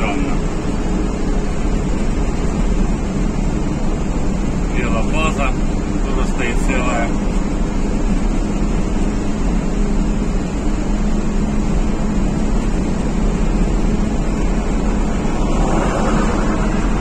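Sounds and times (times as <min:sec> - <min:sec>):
engine hum: 0:00.0 - 0:17.0
tyre and road noise: 0:11.4 - 0:17.0.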